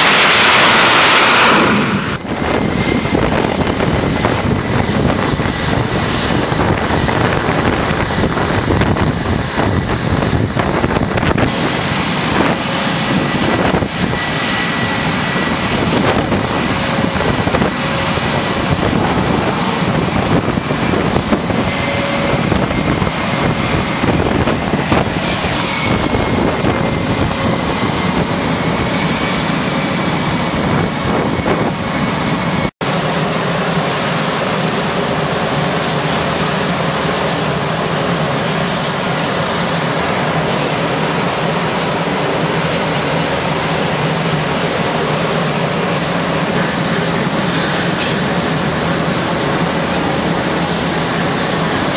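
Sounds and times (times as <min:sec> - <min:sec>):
jet engines with turbine whine: 0:00.0 - 0:51.9.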